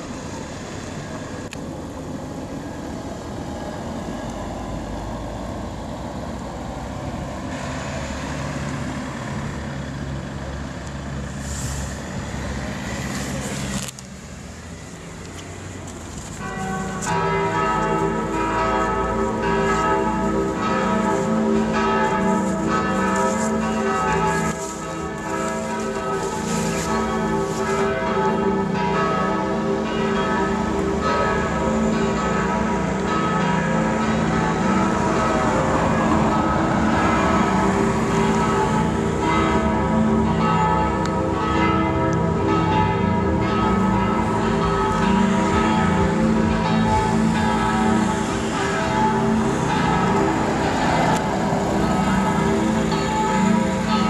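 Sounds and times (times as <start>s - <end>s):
church bells ringing: 15.1s - 54.0s.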